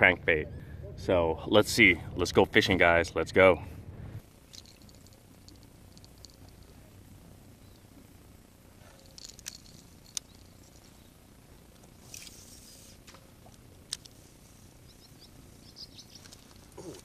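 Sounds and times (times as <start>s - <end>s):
fishing line running off reel: 4.4s - 6.8s, 8.8s - 17.0s
clicks and taps of rod and reel: 8.9s - 10.9s, 13.0s - 14.2s.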